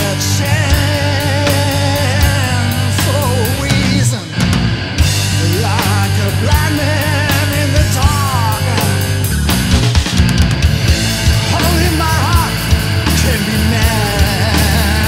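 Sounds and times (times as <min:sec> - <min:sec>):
heavy metal band playing: 0:00.0 - 0:15.0.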